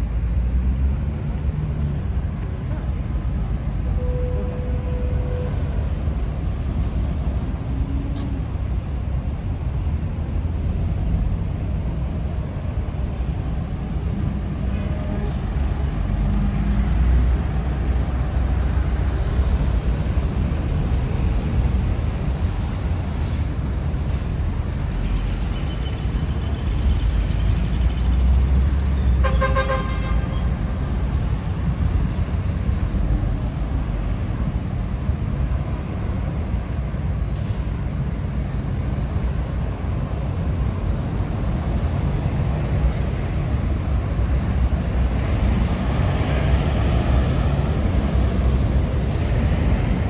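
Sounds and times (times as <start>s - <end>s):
city traffic rumble: 0.0s - 50.0s
vehicle horn: 29.2s - 30.5s.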